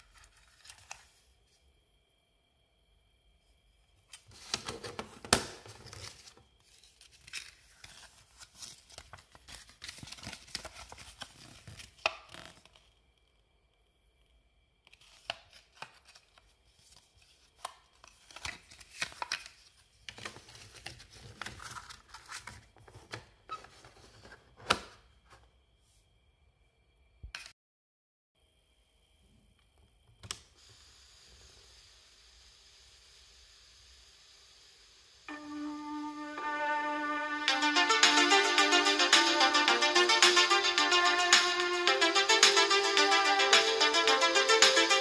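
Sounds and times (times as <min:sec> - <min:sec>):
paper insert rustling: 0:00.0 - 0:01.3, 0:04.1 - 0:12.9, 0:14.9 - 0:25.5.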